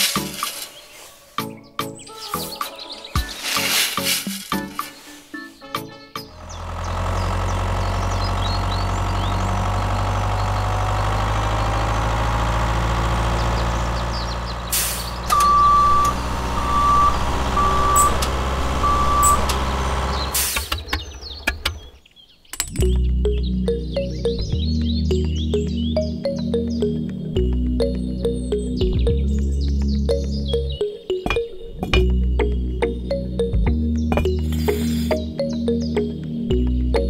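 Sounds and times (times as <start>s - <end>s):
music: 0.0s - 6.6s, 22.7s - 37.0s
heavy vehicle engine running: 6.2s - 21.9s
reverse warning beeps: 15.3s - 19.8s.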